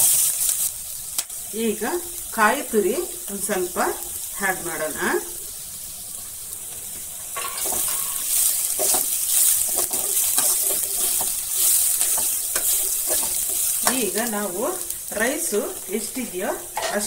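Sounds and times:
food sizzling in a pan: 0.0s - 17.0s
metal spoon scraping a pan: 7.2s - 14.2s, 16.7s - 17.0s.

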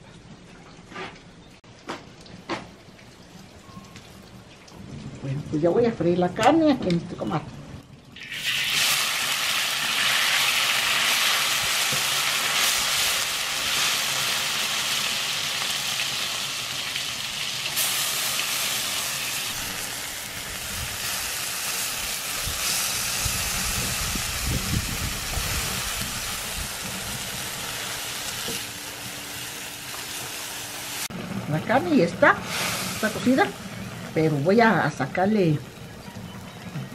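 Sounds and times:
meat sizzling on hot metal: 8.2s - 31.1s, 31.7s - 35.0s.

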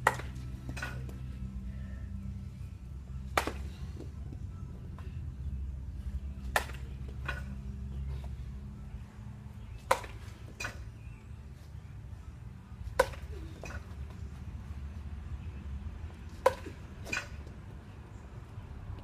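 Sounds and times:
baseball bat cracking ball: 0.0s - 1.2s, 3.3s - 4.1s, 6.4s - 7.7s, 9.7s - 10.9s, 12.8s - 14.2s, 16.3s - 17.6s.

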